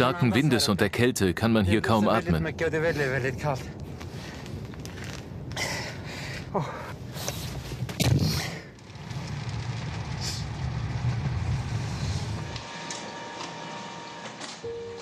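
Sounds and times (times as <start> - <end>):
wind gusting against microphone: 1.8 - 12.5.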